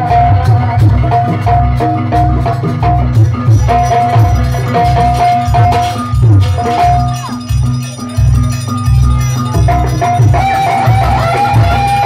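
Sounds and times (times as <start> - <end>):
drums and gong beats: 0.0 - 12.0
rattling percussion: 0.0 - 12.0
repeating melody line: 3.2 - 12.0.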